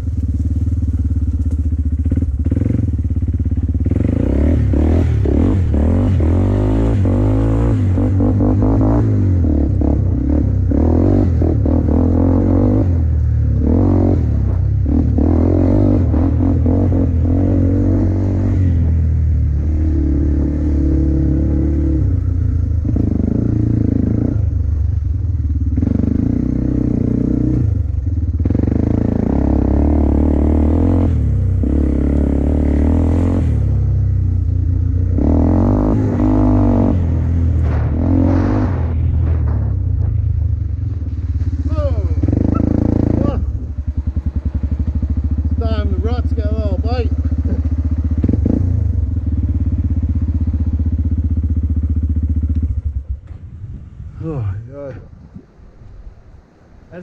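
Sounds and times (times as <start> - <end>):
off-road vehicle engine revving: 0.0 - 55.0
knocks over rough ground: 37.0 - 41.7.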